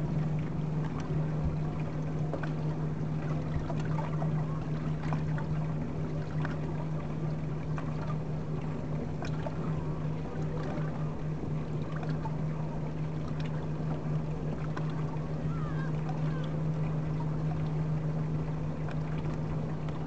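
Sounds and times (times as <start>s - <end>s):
boat motor humming: 0.0s - 20.0s
water lapping against hull: 0.0s - 20.0s.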